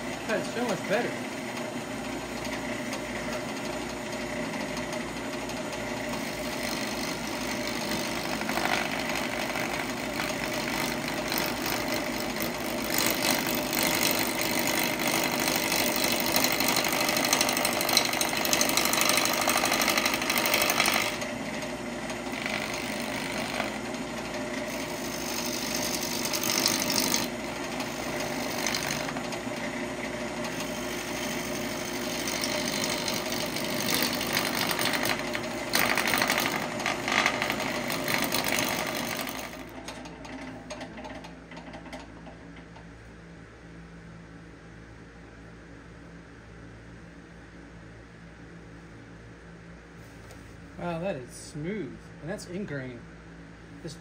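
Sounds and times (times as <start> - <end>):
wood lathe running: 0.0 - 42.0
tool hissing on wood: 24.7 - 29.2.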